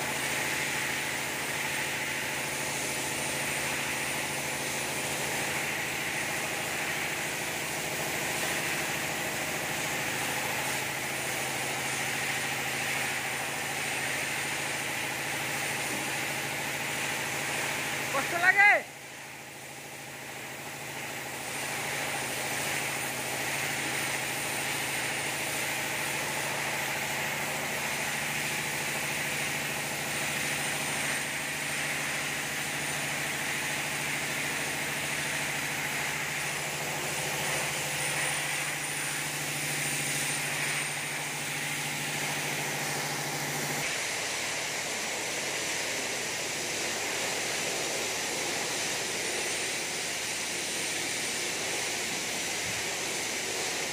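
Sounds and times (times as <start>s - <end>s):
paint spray gun hissing: 0.0s - 53.9s.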